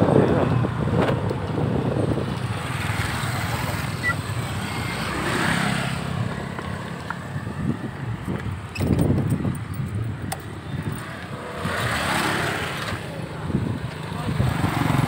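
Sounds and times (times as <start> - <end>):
road noise: 0.0 - 15.0
small motorcycle engines running: 10.3 - 15.0.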